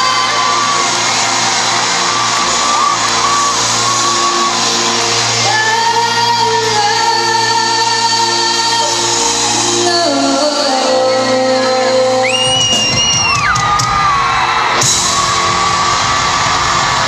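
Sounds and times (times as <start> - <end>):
crowd screaming and cheering: 0.0 - 17.0
live rock band: 0.0 - 17.0
woman singing: 5.4 - 12.8.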